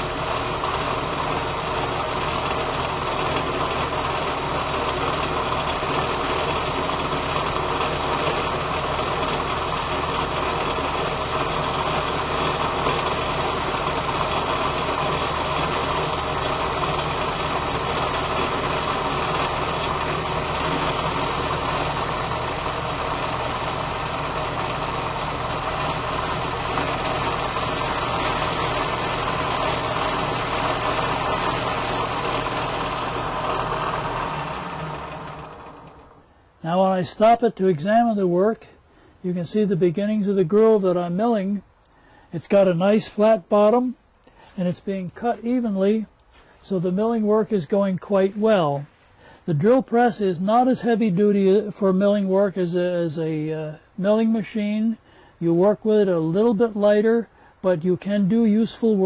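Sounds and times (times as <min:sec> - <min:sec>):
drill press milling metal: 0:00.0 - 0:36.4.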